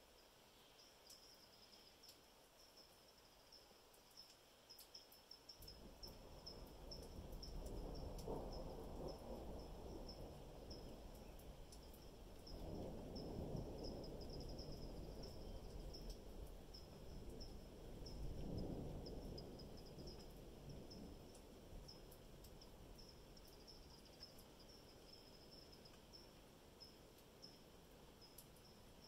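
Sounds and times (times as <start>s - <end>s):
crickets chirping: 0.0s - 29.0s
distant thunder rumbling: 5.7s - 25.7s.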